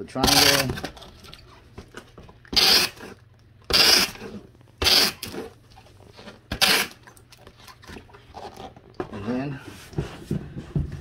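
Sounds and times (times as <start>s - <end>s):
packing tape ripping off roll: 2.5s - 5.5s, 6.1s - 7.0s.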